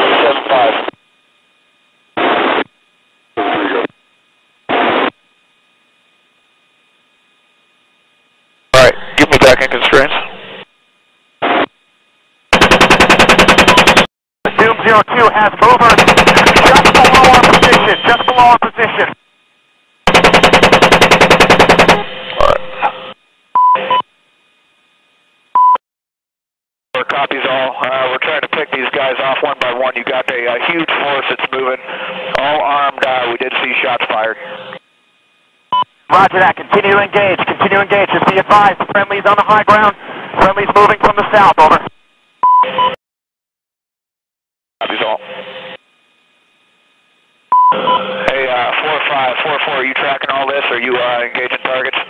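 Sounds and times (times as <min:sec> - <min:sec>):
radio transmission bursts: 0:00.0 - 0:00.9, 0:02.2 - 0:02.7, 0:03.4 - 0:03.9, 0:13.3 - 0:19.2, 0:21.4 - 0:24.0, 0:35.8 - 0:41.9
radio hiss: 0:00.0 - 0:01.0, 0:02.2 - 0:02.7, 0:03.3 - 0:04.0, 0:04.7 - 0:05.1, 0:08.7 - 0:10.7, 0:14.5 - 0:19.2, 0:22.4 - 0:23.1, 0:27.0 - 0:34.8, 0:36.1 - 0:41.9, 0:44.8 - 0:45.2, 0:48.2 - 0:52.0
chain gun firing burst: 0:12.5 - 0:14.1, 0:15.9 - 0:17.9, 0:20.1 - 0:22.0
short steady beeps: 0:17.4 - 0:18.5, 0:23.6 - 0:24.0, 0:25.6 - 0:25.8, 0:47.5 - 0:48.2.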